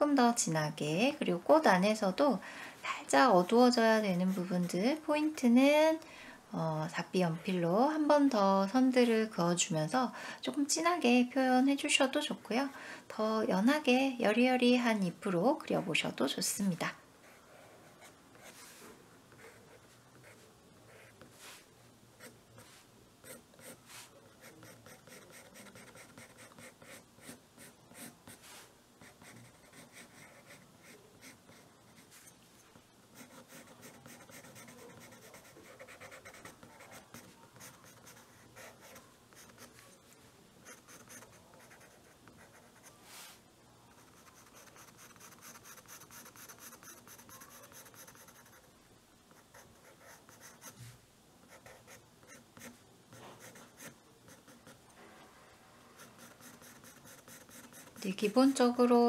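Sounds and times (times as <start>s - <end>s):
pencil scratching on paper: 17.2s - 21.6s, 22.2s - 32.3s, 33.1s - 40.0s, 40.6s - 43.0s, 43.9s - 48.7s, 49.4s - 50.8s, 51.5s - 54.8s, 56.0s - 58.5s.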